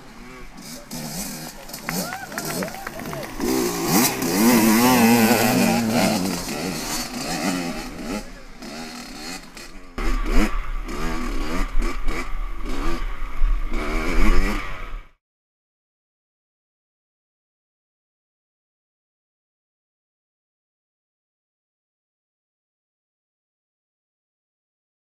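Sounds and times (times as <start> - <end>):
dirt bike engine revving: 0.0 - 15.2.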